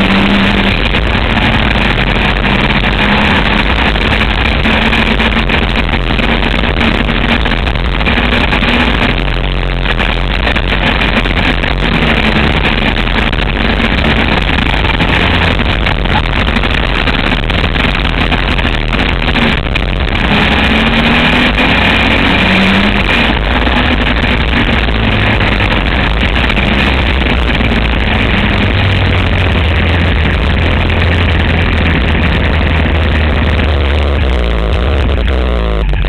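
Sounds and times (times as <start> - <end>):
motor trike engine racing: 0.0 - 36.0
wind noise on microphone: 0.0 - 36.0.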